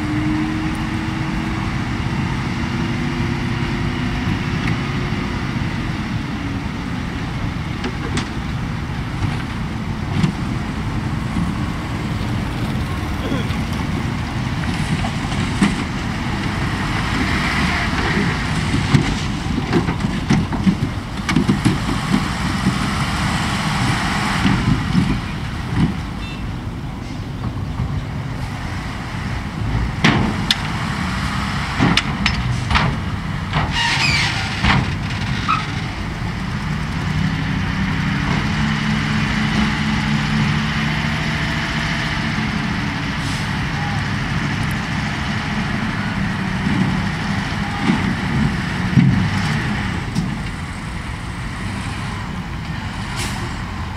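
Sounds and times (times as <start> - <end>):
dump truck engines rumbling: 0.0 - 53.9.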